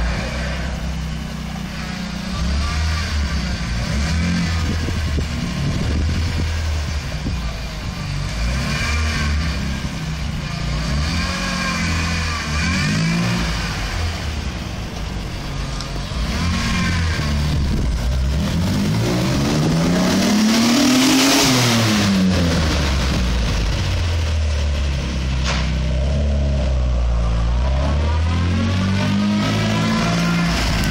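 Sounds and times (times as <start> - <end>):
car engine revving and accelerating: 0.0 - 14.6, 15.8 - 30.9.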